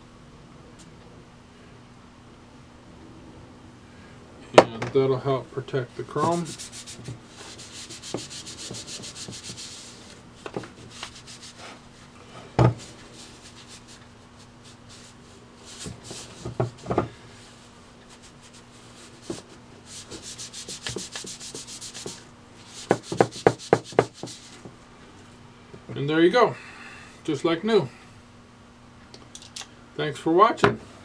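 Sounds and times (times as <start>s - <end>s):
cloth rubbing on chrome: 5.2s - 24.8s.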